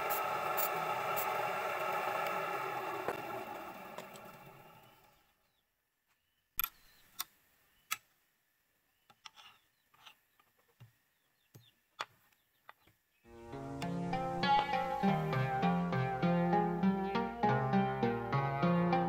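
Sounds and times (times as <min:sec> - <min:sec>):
wood lathe motor spinning down: 0:00.0 - 0:05.2
music: 0:13.3 - 0:19.0.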